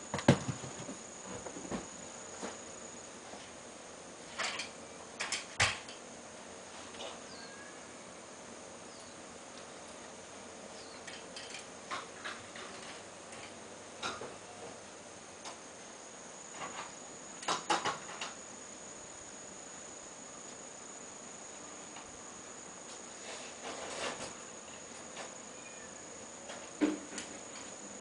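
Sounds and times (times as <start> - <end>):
high-pitched insect trill: 7.0 - 9.3, 10.6 - 13.4, 15.8 - 28.0.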